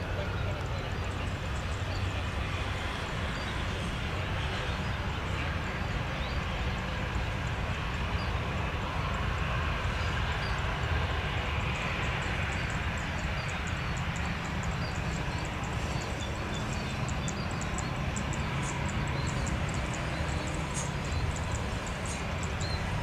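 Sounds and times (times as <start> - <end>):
jet engines idling: 0.0 - 23.0
rapid high insect-like ticking: 10.5 - 23.0.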